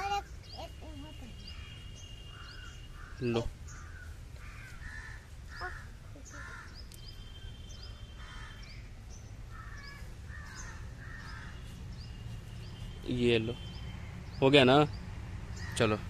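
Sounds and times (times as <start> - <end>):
harsh bird calls: 0.0 - 16.0
high bird chirps: 5.5 - 15.8.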